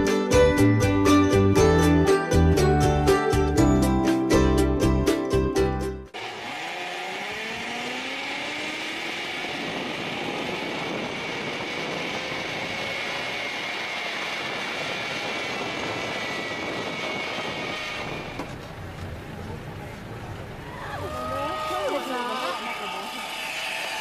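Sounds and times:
pulleys whirring along steel cable: 6.2s - 18.6s, 20.9s - 24.0s.

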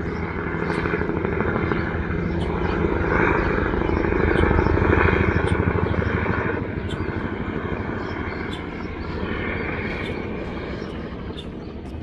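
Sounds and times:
helicopter rotor chop and drone: 0.0s - 12.0s.

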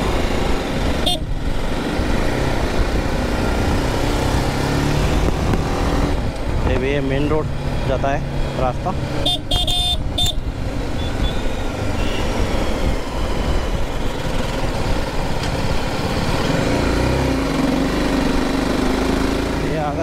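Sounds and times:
wind and road noise: 0.0s - 20.0s
short horn beeps: 9.2s - 10.4s, 11.0s - 12.3s.

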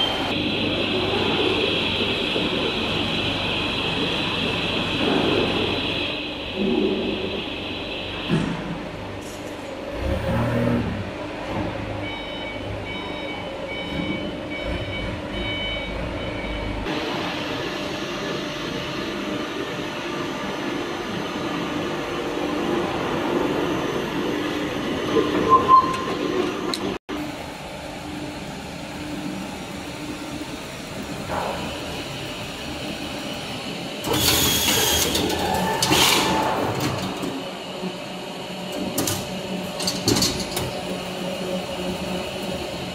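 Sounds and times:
production line machinery running: 0.0s - 42.9s.

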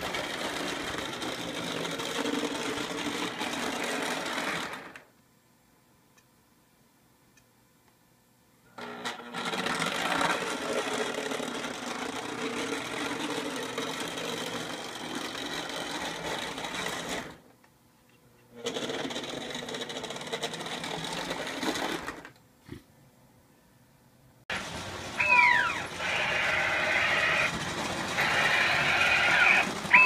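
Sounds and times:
model train motor whirring: 0.0s - 5.1s, 8.8s - 17.4s, 18.6s - 22.3s, 24.5s - 30.0s
wheels rumbling on rails: 24.5s - 30.0s.

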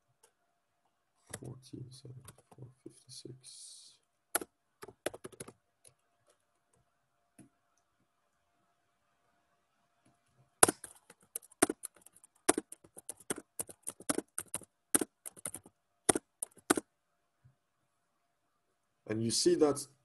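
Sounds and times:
computer keys and mouse clicking: 4.4s - 6.4s, 10.6s - 16.8s.

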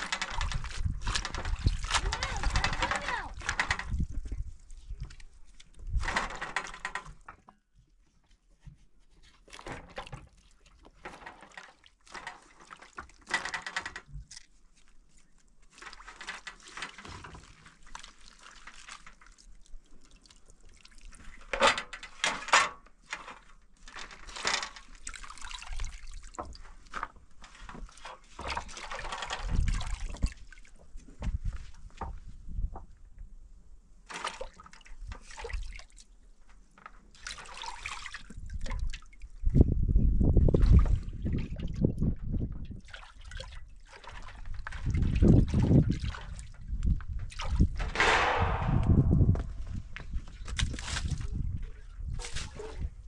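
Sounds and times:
liquid splashing and dripping: 14.2s - 21.5s, 24.8s - 27.0s
wet hands squeezing vegetables in pot: 14.2s - 21.5s.

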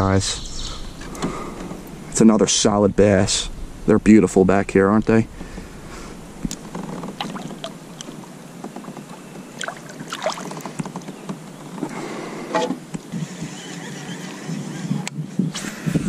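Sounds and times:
small water sounds: 6.4s - 11.3s
fish splashing into water: 7.1s - 8.2s, 9.6s - 10.8s
clicks and knocks on kayak: 10.5s - 13.1s.

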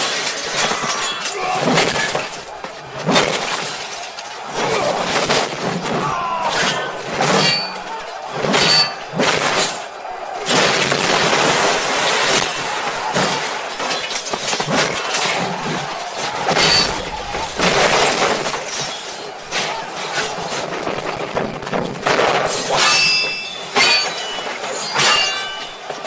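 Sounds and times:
crashes and heavy impacts: 0.0s - 26.0s
metal clangs: 5.0s - 10.8s, 22.3s - 26.0s.

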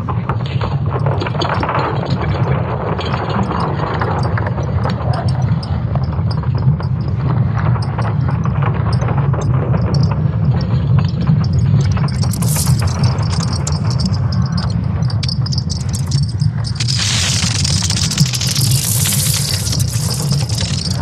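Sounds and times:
scattered clicks: 1.0s - 21.0s
dense crackling: 11.2s - 21.0s.

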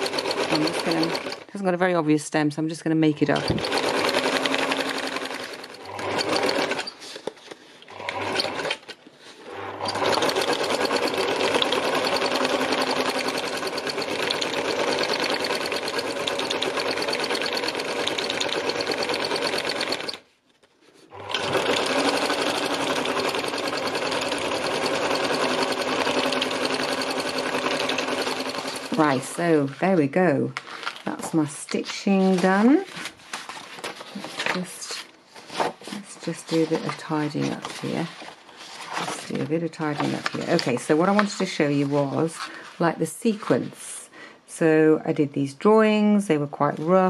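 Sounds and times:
sewing machine stitching: 0.0s - 1.6s, 3.3s - 7.2s, 7.8s - 20.2s, 21.1s - 29.7s, 36.2s - 42.5s.

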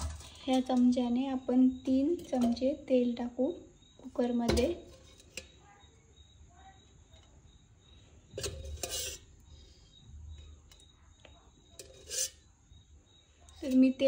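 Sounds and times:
spoon clinking on metal pot: 2.1s - 2.7s, 8.4s - 9.2s, 11.8s - 12.4s.

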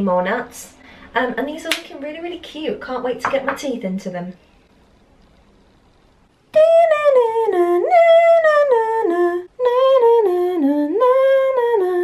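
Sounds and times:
woman singing wordless tune: 6.5s - 12.0s.

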